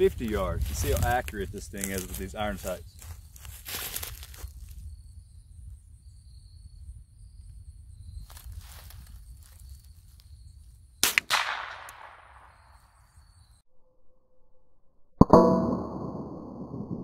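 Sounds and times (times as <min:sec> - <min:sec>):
rifle shots: 0:11.0 - 0:12.8.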